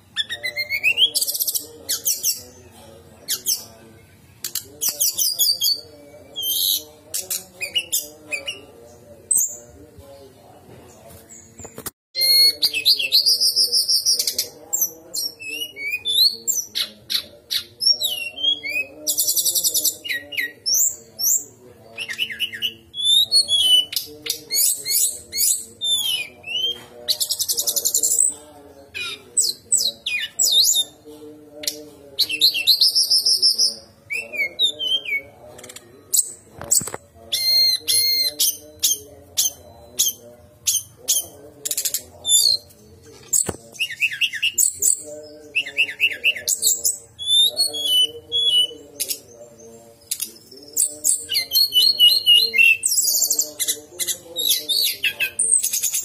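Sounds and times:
bird singing trills and whistles: 0:11.3 - 0:28.3, 0:31.6 - 0:56.0.

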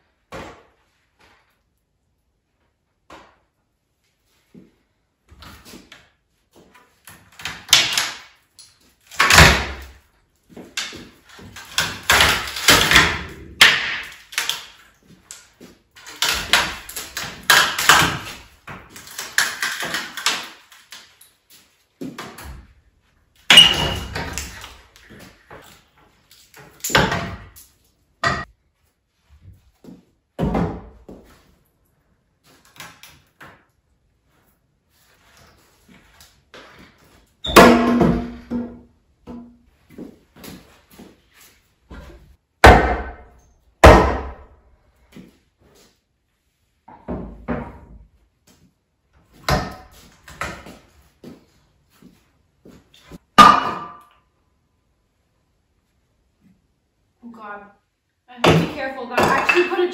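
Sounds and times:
wood knocks and bangs: 0:09.1 - 0:14.8, 0:29.8 - 0:31.4, 0:37.4 - 0:40.8.

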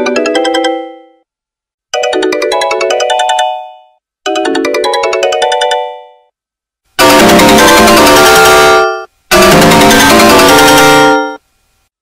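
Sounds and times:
phone ringtone melody: 0:00.0 - 0:01.3, 0:01.9 - 0:06.4, 0:07.0 - 0:11.4.

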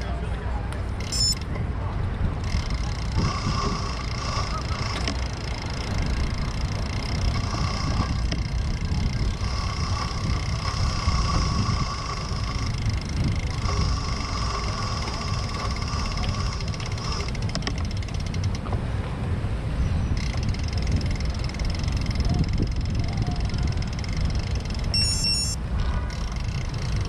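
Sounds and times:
wind and bicycle road rumble: 0:00.0 - 0:27.0
faint high-pitched tones: 0:24.9 - 0:25.6.

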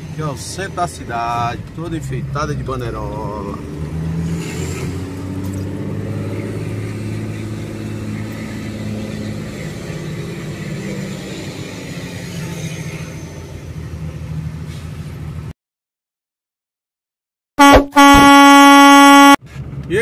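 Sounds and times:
tyres hissing on wet street: 0:04.2 - 0:05.6, 0:14.5 - 0:15.4.

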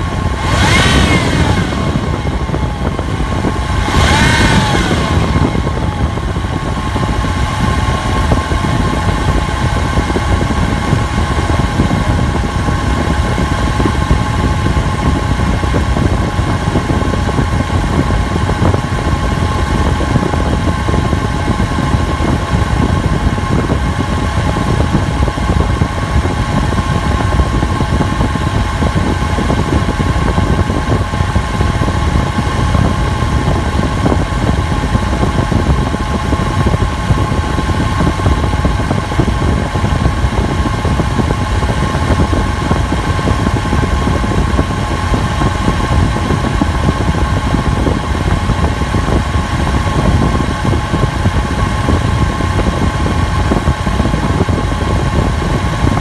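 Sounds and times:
car engine idling: 0:00.0 - 0:16.4
steady whine: 0:00.0 - 0:56.0.

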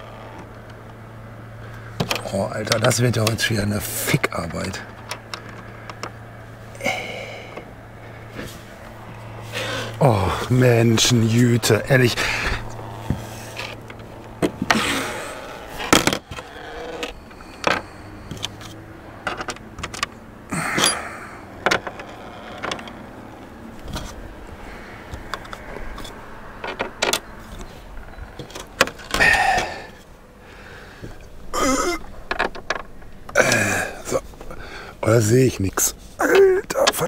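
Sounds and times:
breathy noise rushes: 0:04.8 - 0:19.2, 0:20.5 - 0:26.6, 0:29.0 - 0:36.2.

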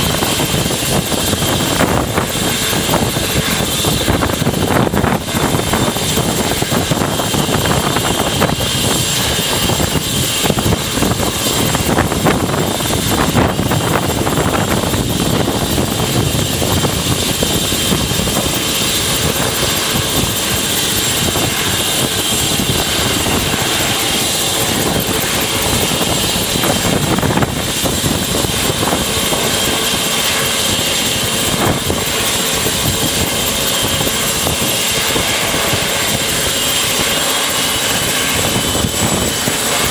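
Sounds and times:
helicopter running with rotor turning: 0:00.0 - 0:39.9.

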